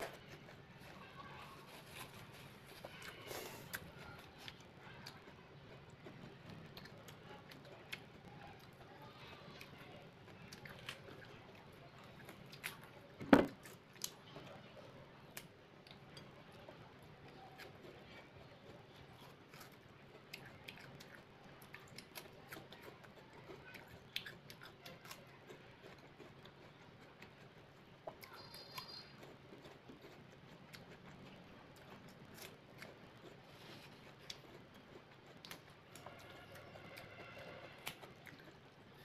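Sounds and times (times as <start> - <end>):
crisp fruit crunching: 0.0 - 7.8.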